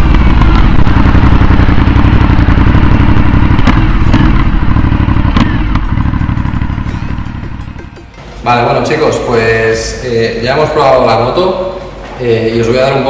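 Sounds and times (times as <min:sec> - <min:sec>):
motorcycle engine at low speed: 0:00.0 - 0:08.4
sharp knocks: 0:00.0 - 0:08.4.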